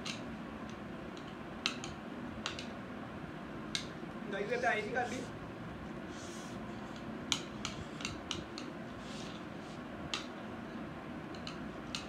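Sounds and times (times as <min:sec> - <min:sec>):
chopsticks clicking on plates: 0:00.0 - 0:02.7, 0:07.0 - 0:08.8, 0:10.1 - 0:10.3, 0:11.3 - 0:12.0.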